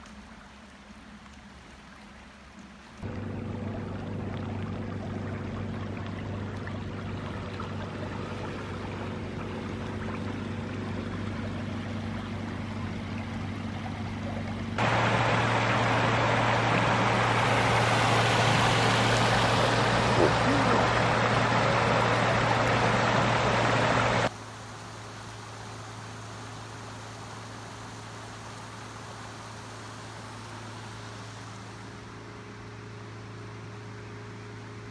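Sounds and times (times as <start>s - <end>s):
floodwater rushing: 0.0s - 32.1s
low steady hum: 0.0s - 34.9s.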